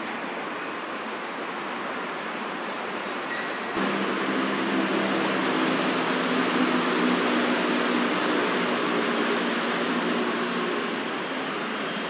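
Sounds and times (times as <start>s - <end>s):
steady rushing noise: 3.7s - 12.0s.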